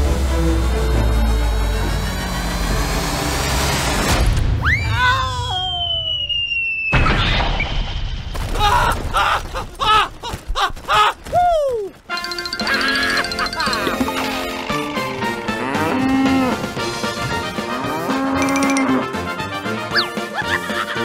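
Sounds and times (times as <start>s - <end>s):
cartoon crash: 6.9s - 9.2s
falling wavering cartoon cry: 12.6s - 13.8s.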